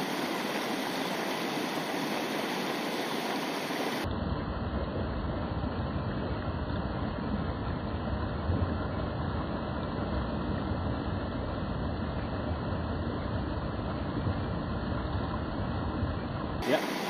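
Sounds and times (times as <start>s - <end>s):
stream rushing over rocks: 0.0s - 4.1s, 16.6s - 17.0s.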